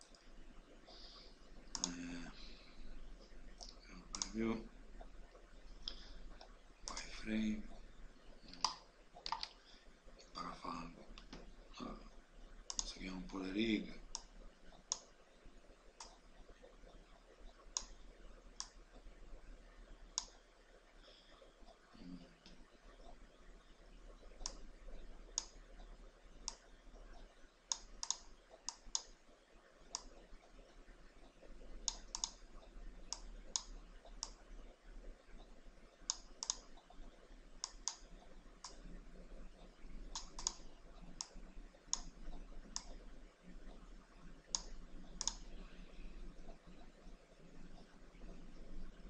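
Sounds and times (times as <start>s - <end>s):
faint low hum: 0.0s - 49.0s
mouse buttons clicking: 1.7s - 2.2s, 8.5s - 9.6s, 12.7s - 13.4s, 24.4s - 24.6s, 27.7s - 29.1s, 31.8s - 32.4s, 36.1s - 36.7s, 40.1s - 43.0s, 44.5s - 45.5s.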